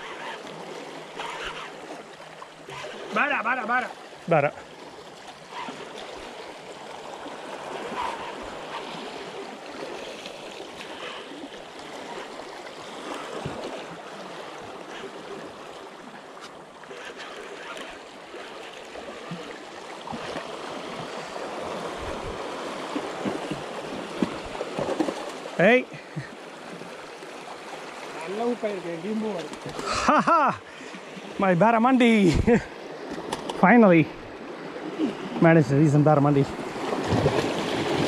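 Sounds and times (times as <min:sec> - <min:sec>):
sea water washing against rocks: 0:16.9 - 0:30.3, 0:36.4 - 0:38.0.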